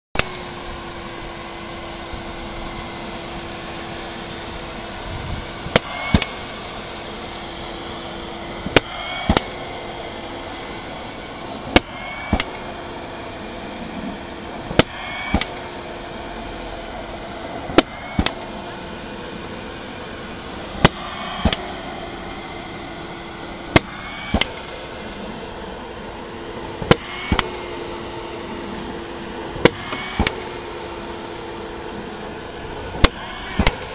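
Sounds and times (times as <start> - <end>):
ball machine motor hum: 0.1 - 33.9
ball machine firing clacks: 5.7 - 6.5, 8.6 - 9.7, 11.7 - 12.7, 14.7 - 15.7, 17.7 - 18.5, 20.8 - 21.8, 23.7 - 24.7, 26.8 - 27.7, 29.6 - 30.6, 32.9 - 33.9.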